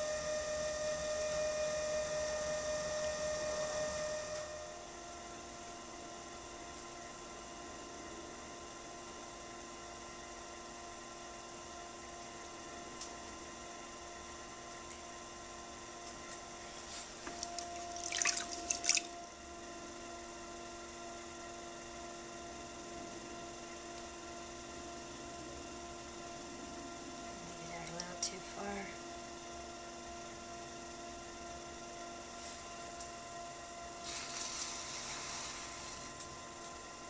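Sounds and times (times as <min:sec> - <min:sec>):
pottery wheel motor hum: 0:00.0 - 0:37.0
water splashing and dripping: 0:17.4 - 0:19.1.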